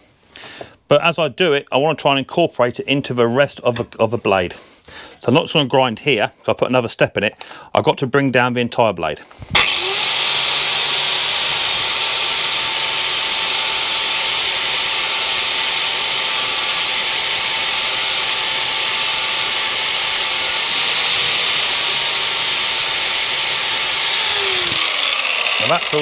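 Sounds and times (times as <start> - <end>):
angle grinder grinding steel: 9.5 - 26.0
grinder disc whine: 9.6 - 26.0.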